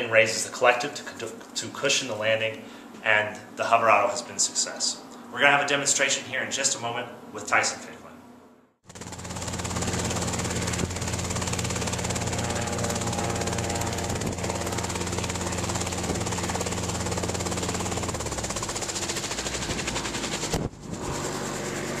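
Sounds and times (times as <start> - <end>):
helicopter engine and rotor: 8.8 - 22.0.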